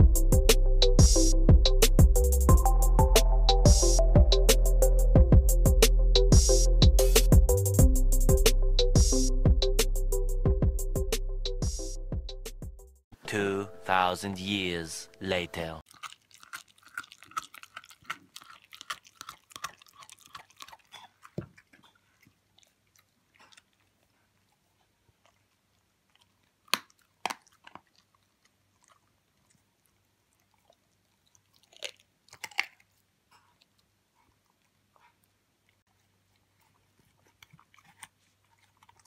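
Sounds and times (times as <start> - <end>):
puppy chewing and crunching food: 15.3 - 39.0.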